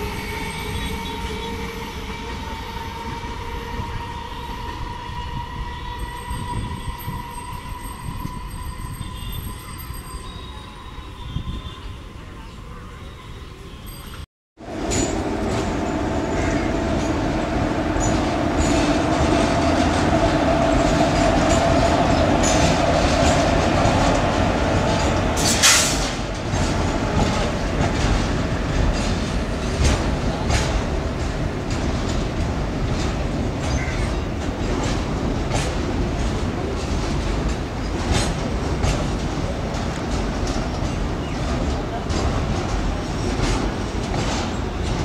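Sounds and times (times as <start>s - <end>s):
freight train wheels clicking: 14.6s - 45.0s.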